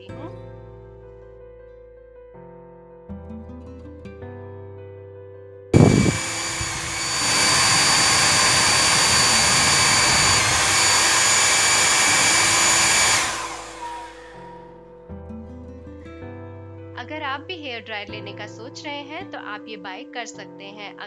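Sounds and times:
hair dryer blowing: 5.8 - 14.7.

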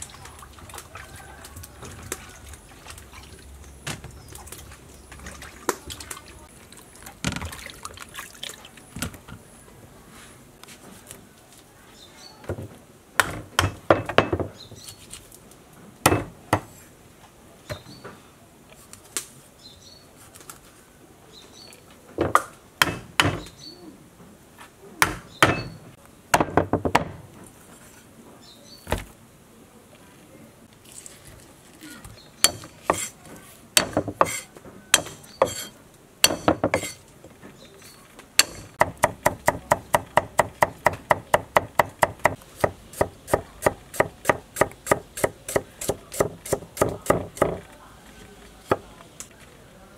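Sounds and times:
cleaver chopping on wooden block: 22.2 - 23.5, 25.0 - 25.8, 32.4 - 33.1, 33.8 - 37.0, 38.4 - 47.6.

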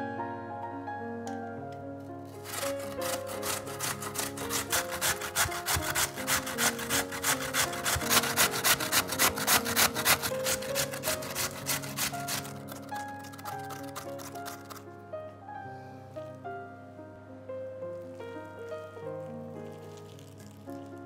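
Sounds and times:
potato grating rasps: 2.3 - 14.9, 19.6 - 21.0.

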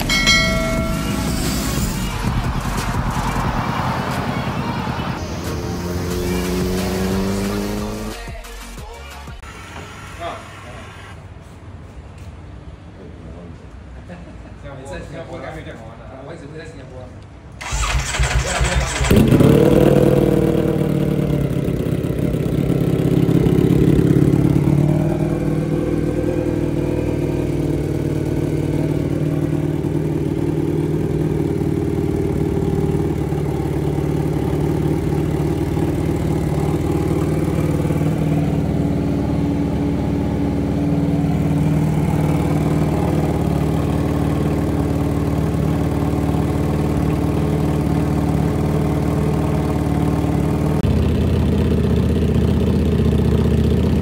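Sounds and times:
motorcycle engine idling: 0.0 - 3.7, 17.6 - 54.0.

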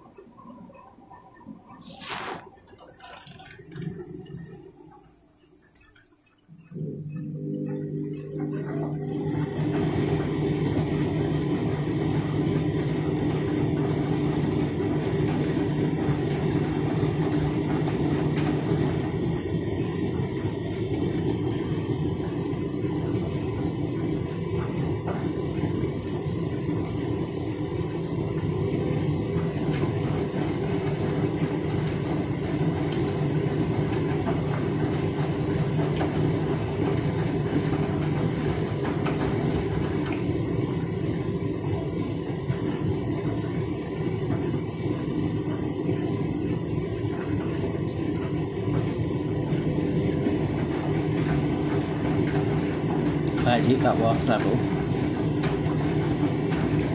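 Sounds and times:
washing machine hum: 0.0 - 56.9
water rushing: 1.7 - 4.8.

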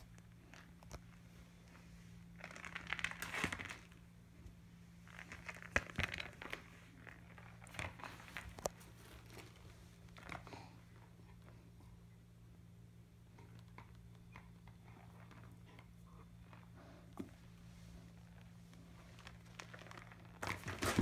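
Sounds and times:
dog chewing plastic ball: 5.0 - 11.8, 13.3 - 21.0.

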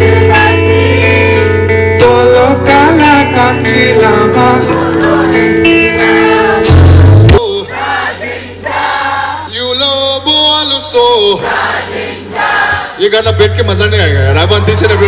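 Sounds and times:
live rock band playing: 0.0 - 7.4
man singing: 1.9 - 5.5.

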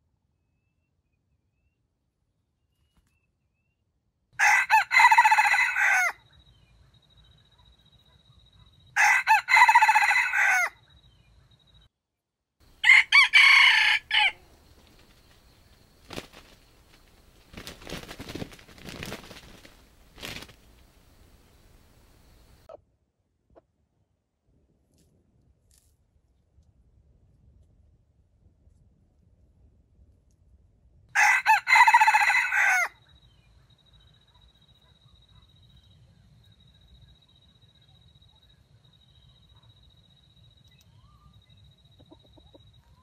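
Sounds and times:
rooster crowing: 4.4 - 6.2, 9.0 - 10.8, 12.7 - 14.7, 31.2 - 33.0.

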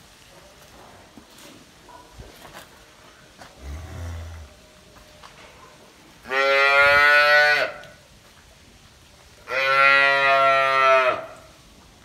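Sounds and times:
cow mooing: 3.6 - 4.6.

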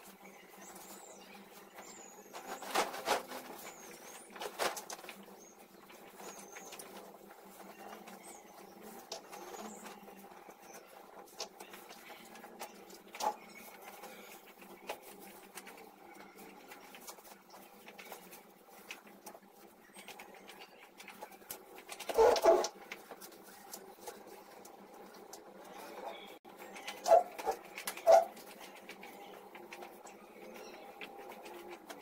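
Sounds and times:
bedding rustling: 0.0 - 20.4
small clicks and scrapes: 0.0 - 32.0.

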